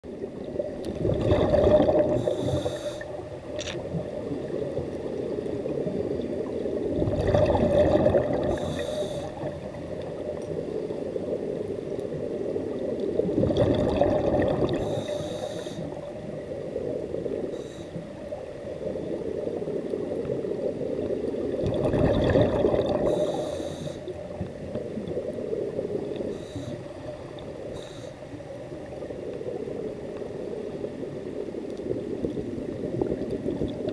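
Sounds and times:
underwater rush: 0.0s - 33.9s
diver bubble exhalations: 1.0s - 2.8s, 7.0s - 9.6s, 13.3s - 15.3s, 21.6s - 23.5s.

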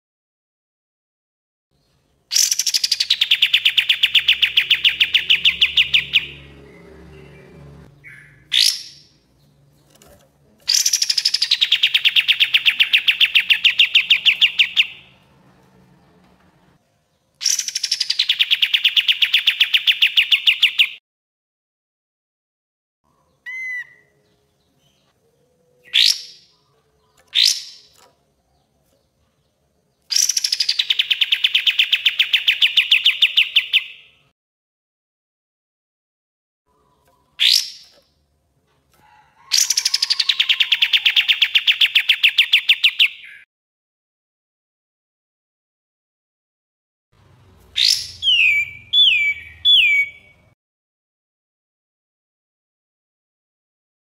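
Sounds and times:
bird song trills: 1.8s - 10.0s, 10.7s - 15.2s, 17.1s - 21.0s, 23.1s - 34.3s, 39.5s - 43.5s, 47.6s - 50.6s.

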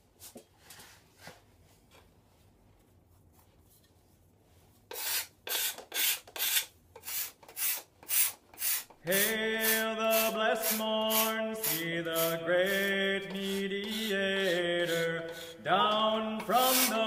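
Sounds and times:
hand sanding wood: 4.9s - 17.0s.

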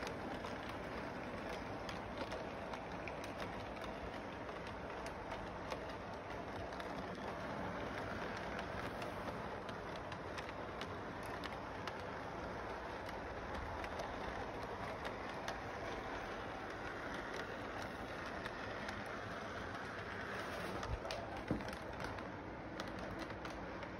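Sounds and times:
model train running rumble: 0.0s - 23.9s
wheels clicking over rail joints: 0.0s - 23.9s.

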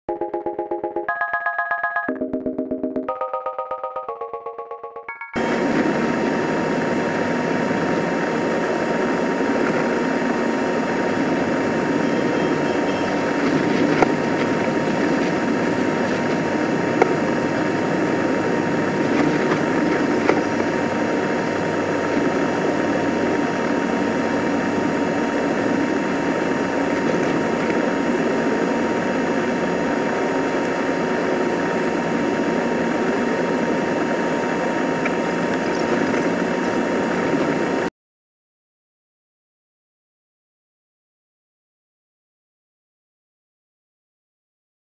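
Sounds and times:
faint constant whine: 2.2s - 37.9s
train carriage running noise: 5.1s - 37.9s.

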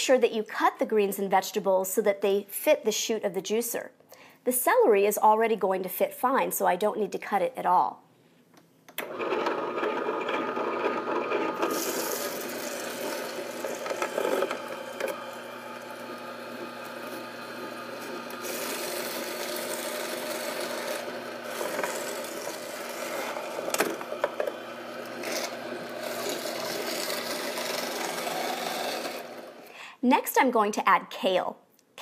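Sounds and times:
juicer grinding celery: 9.0s - 29.7s
motor hum: 9.0s - 29.7s.

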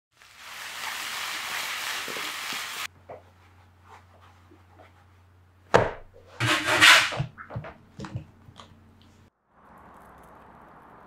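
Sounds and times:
onions sizzling in a pan: 0.1s - 2.9s.

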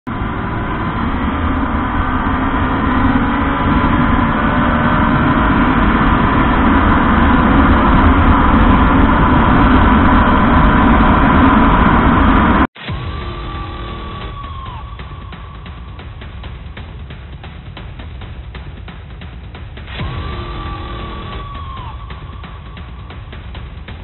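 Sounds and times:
motorcycle engine running: 12.8s - 24.0s.

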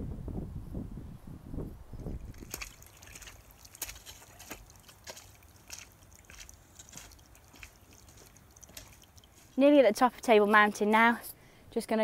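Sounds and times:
low wind rumble: 0.0s - 3.2s
footsteps on stony path: 2.1s - 11.2s.

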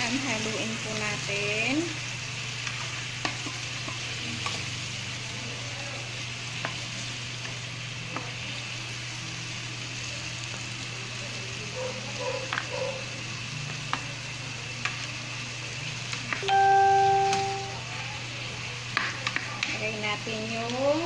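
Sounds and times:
chicken sizzling in a pan: 0.0s - 21.0s.

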